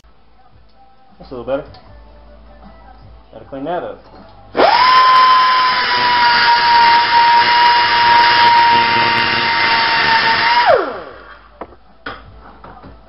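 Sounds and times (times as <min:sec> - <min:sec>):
angle grinder grinding metal: 0:04.6 - 0:11.4
grinder winding down: 0:04.6 - 0:11.5.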